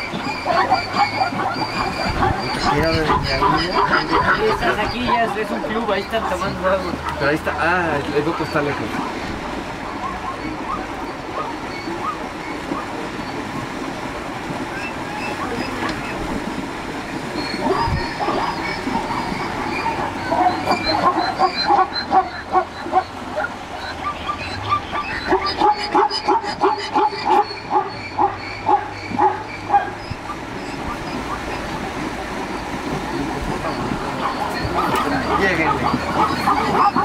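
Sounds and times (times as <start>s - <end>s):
zebras barking: 0.0s - 13.8s, 14.4s - 37.0s
river rushing: 0.0s - 37.0s.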